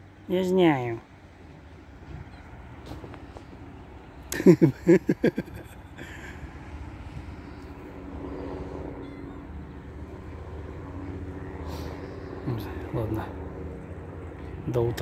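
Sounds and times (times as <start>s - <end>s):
traffic hum: 0.0s - 15.0s
cat calling: 9.0s - 9.8s.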